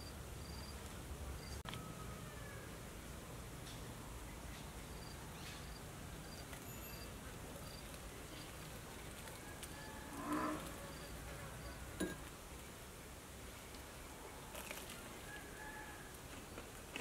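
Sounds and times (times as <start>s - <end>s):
insects buzzing: 9.7s - 12.0s.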